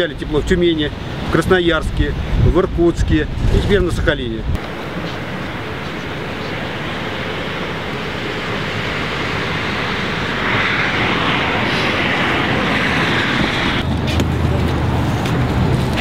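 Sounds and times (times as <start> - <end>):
aircraft engine noise: 4.6 - 16.0.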